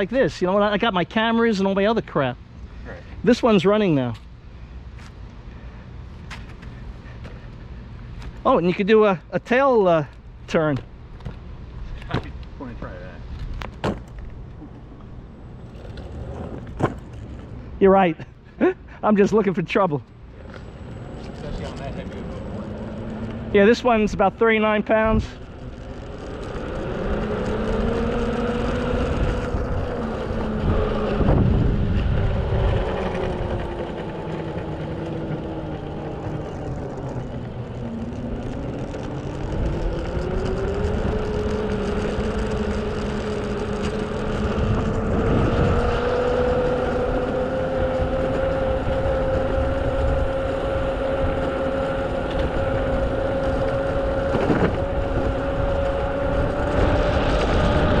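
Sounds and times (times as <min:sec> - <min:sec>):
tyres rumbling on rough asphalt: 0:00.0 - 0:58.0
electric skateboard motor whining: 0:13.4 - 0:17.6, 0:20.3 - 0:58.0.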